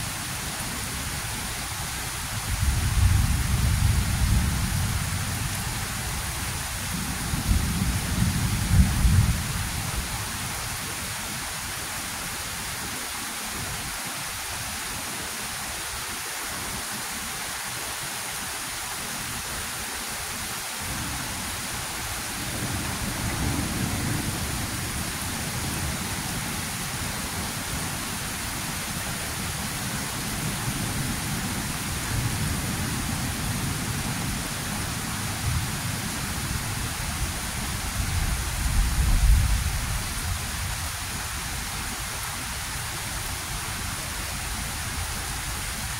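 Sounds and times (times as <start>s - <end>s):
heavy rain: 0.0s - 45.9s
thunder rumbling: 2.5s - 5.9s, 6.9s - 9.8s, 22.4s - 25.9s.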